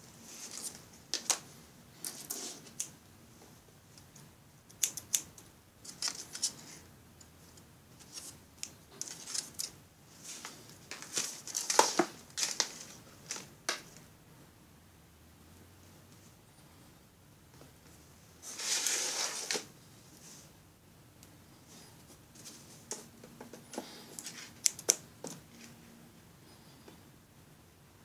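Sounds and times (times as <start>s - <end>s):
plastic strip rustling: 4.7s - 6.8s, 8.0s - 14.0s, 18.5s - 19.7s.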